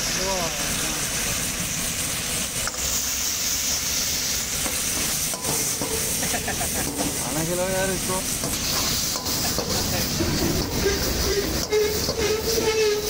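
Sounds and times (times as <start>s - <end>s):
chicken sizzling in wok: 0.0s - 13.0s
ladle clinking against wok: 5.0s - 7.3s, 8.4s - 12.8s.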